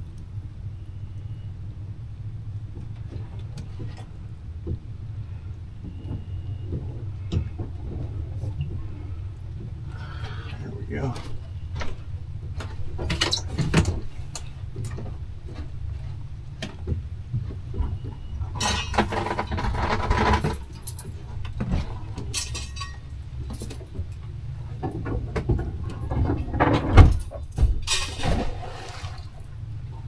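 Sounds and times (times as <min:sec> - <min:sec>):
steady low rumble: 0:00.0 - 0:30.0
clinks and knocks of small objects: 0:22.3 - 0:23.8.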